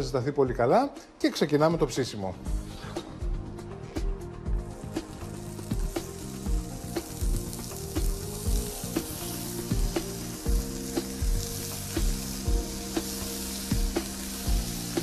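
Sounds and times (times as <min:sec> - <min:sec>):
background music with steady beat: 0:00.0 - 0:15.0
cheese sizzling on grill pan: 0:04.8 - 0:15.0.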